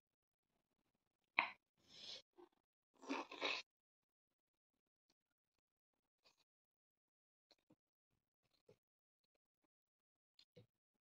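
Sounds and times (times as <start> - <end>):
person chewing noodle soup: 3.0 - 3.6.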